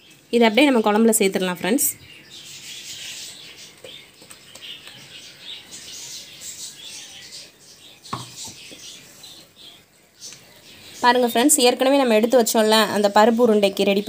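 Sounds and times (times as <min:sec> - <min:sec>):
gravy crackling and bubbling: 0:02.2 - 0:13.2.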